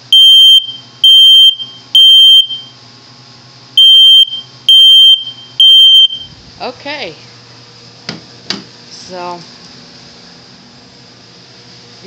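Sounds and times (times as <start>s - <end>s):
smoke alarm beeping: 0.1s - 2.8s, 3.8s - 6.3s.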